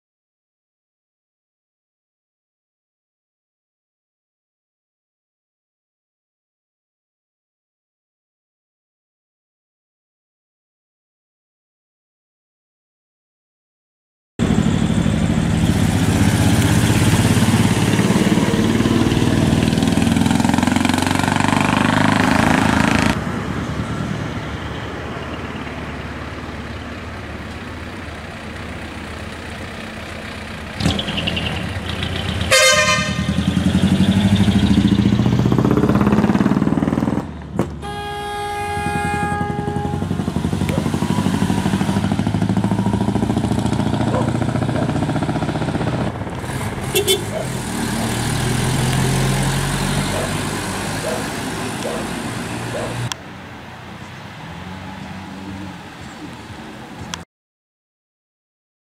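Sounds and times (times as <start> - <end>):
truck engine rumble: 14.4 - 57.2
truck horn blast: 32.5 - 34.4, 37.8 - 43.2, 46.8 - 47.5.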